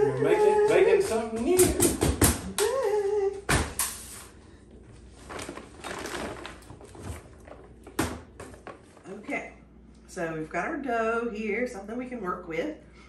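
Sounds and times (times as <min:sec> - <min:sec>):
bags rustling: 0:04.8 - 0:09.1.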